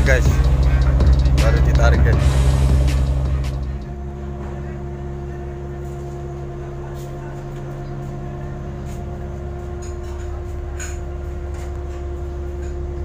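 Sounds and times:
boat diesel engine drone: 0.0 - 13.0.

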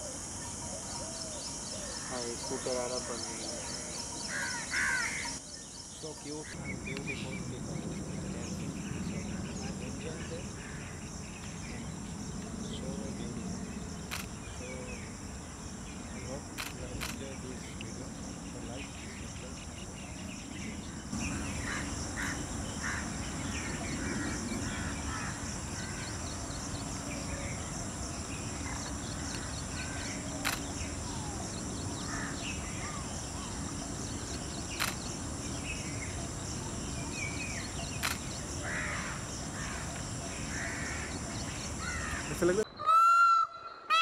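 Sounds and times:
high-pitched insect drone: 0.0 - 42.6
bird calls and chirps: 0.0 - 44.0
sharp clicks: 14.1 - 14.4, 16.6 - 17.2, 30.4 - 30.8, 34.7 - 35.1, 37.9 - 38.4.

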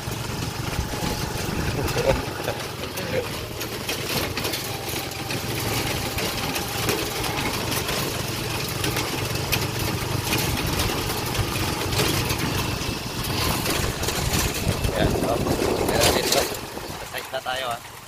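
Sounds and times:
road noise: 0.0 - 18.0
vehicle engine running: 0.0 - 18.0
wind noise: 12.6 - 17.2.

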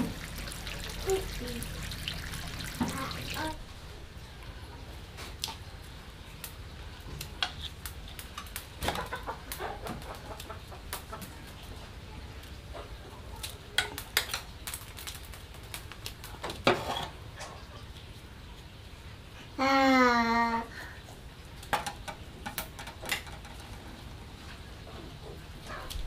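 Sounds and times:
bamboo shoots crackling as peeled: 6.4 - 8.9, 13.3 - 16.4.

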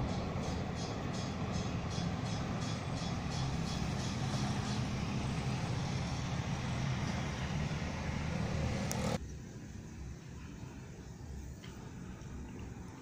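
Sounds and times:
wheel clicks over rail joints: 0.0 - 7.4
train rumbling: 0.0 - 10.1.

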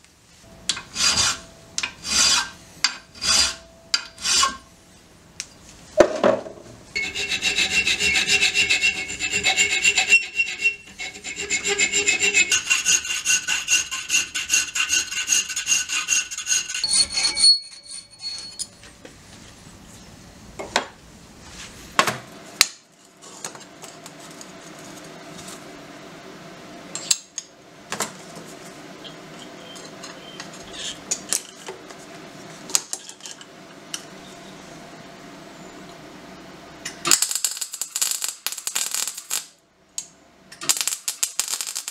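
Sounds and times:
file rasping on steel: 0.8 - 4.6, 7.0 - 18.6
thin steel ringing: 7.0 - 12.4, 16.8 - 18.9.

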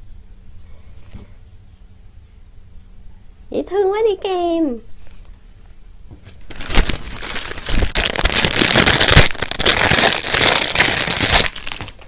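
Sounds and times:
plastic packaging crinkling: 6.4 - 12.0.

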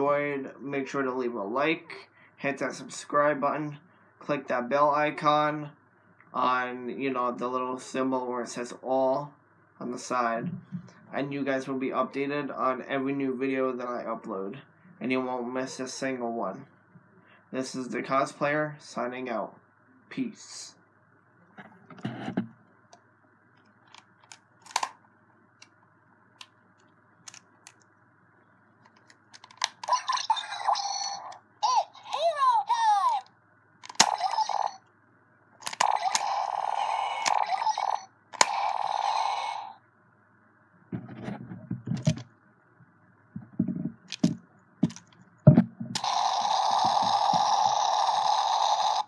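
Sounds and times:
plastic toy clicks and knocks: 28.9 - 30.0, 33.8 - 34.7, 35.6 - 36.4, 37.2 - 38.7, 44.1 - 46.2
plastic toy clicks: 29.0 - 31.4, 33.8 - 34.8, 35.6 - 39.2, 46.0 - 48.2
electronic toy sound effects: 29.7 - 34.8, 35.6 - 39.8, 46.0 - 49.0.

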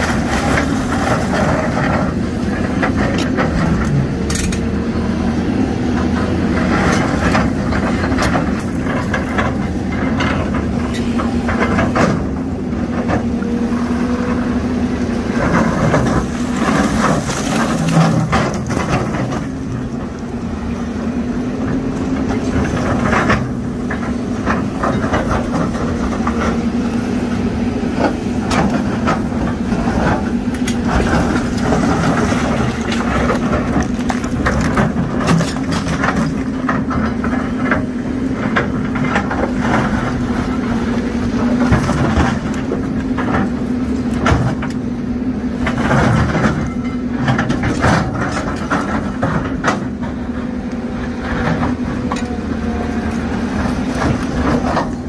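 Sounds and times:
excavator diesel engine running: 0.0 - 55.0
rocks knocking and clattering: 28.4 - 37.8.

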